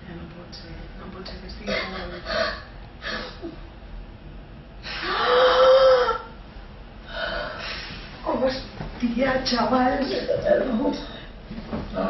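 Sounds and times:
woman gasping: 7.1s - 8.0s.

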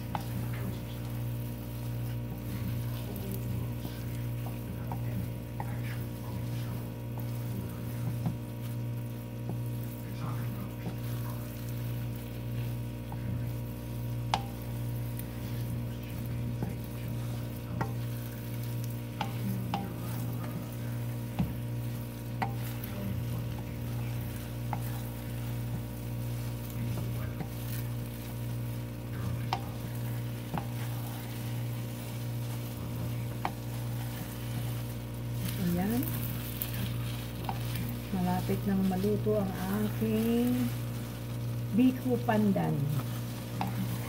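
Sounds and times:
spatula scraping sticky rice in wok: 0.0s - 44.0s
steady low hum: 0.0s - 44.0s
spatula tapping on pan: 4.2s - 5.9s, 14.2s - 15.6s, 17.6s - 22.9s, 24.4s - 28.7s, 29.4s - 30.9s, 33.2s - 34.6s.

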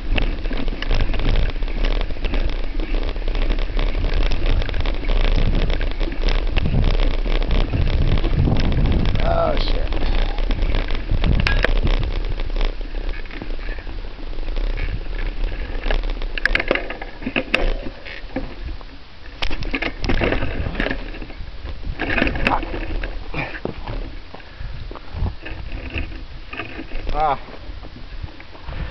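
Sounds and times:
footsteps crunching on gravel: 0.0s - 28.9s
wind rumbling on microphone: 0.0s - 28.9s.

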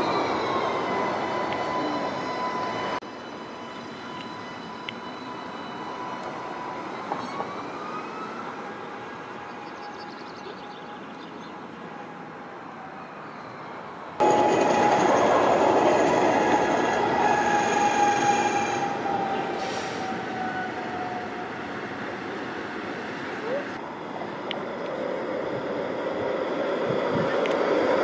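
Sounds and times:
tram motors whining: 0.0s - 10.0s, 14.2s - 28.0s
wheels whining on rails: 0.0s - 10.0s, 13.6s - 28.0s
tram running past: 14.0s - 28.0s.

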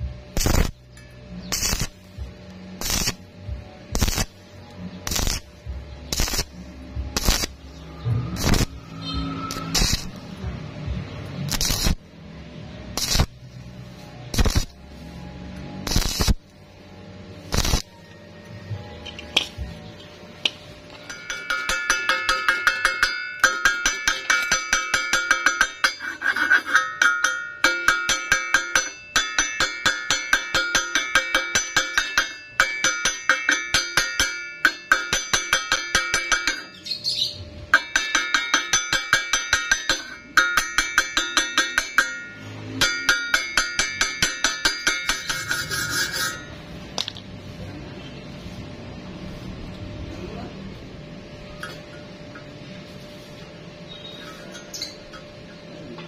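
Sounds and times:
welding arc crackling and buzzing: 0.0s - 12.2s, 12.8s - 18.1s.

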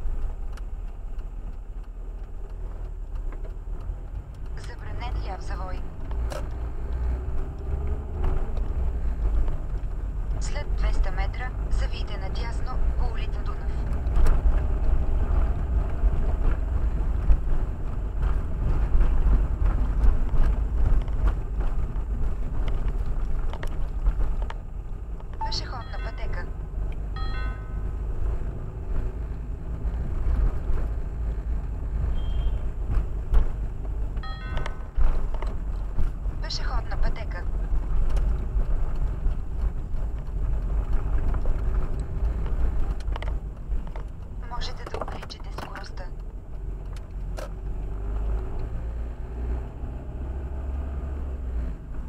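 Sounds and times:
car engine and road noise: 0.0s - 52.0s.

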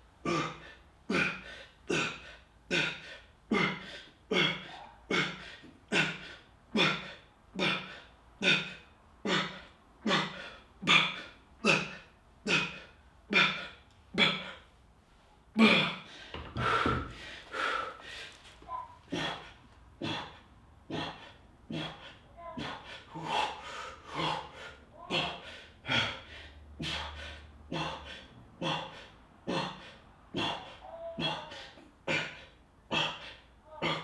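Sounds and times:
heavy uneven panting: 15.7s - 34.0s
man breathing out hard: 15.8s - 18.4s, 21.0s - 34.0s.

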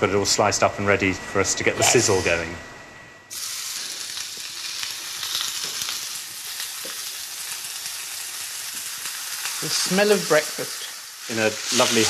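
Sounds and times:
bacon sizzling in a pan: 3.3s - 12.0s.

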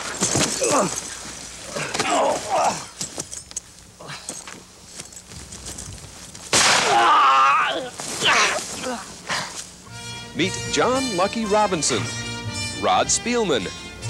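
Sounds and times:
bodies thudding on ground: 0.0s - 3.5s
scuffling: 0.0s - 6.8s, 7.5s - 9.9s
men grunting and yelling: 0.5s - 1.1s, 1.7s - 3.0s, 6.8s - 9.6s.

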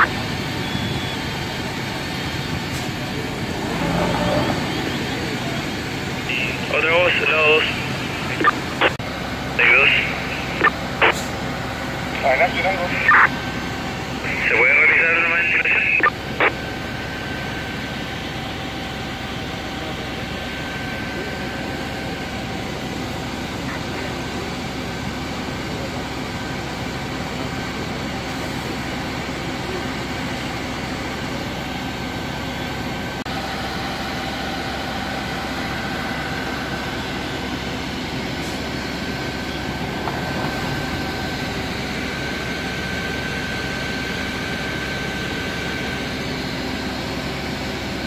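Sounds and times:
fire engine drone: 0.0s - 48.0s
faint steady whine: 4.0s - 22.9s.

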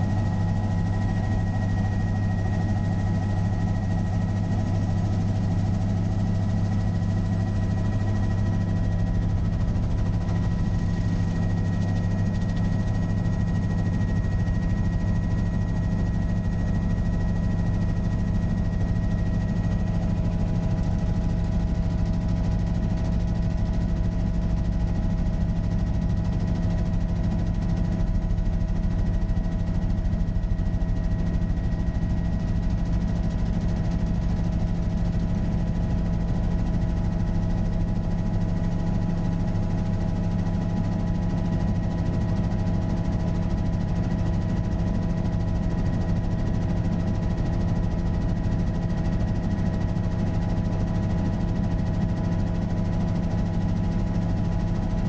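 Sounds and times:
constant whining tones: 0.0s - 18.1s
helicopter engine and rotor drone: 0.0s - 55.0s.

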